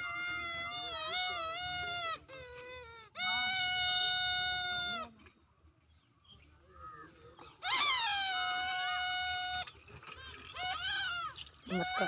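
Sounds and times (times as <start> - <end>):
puppy crying: 10.6 - 12.0.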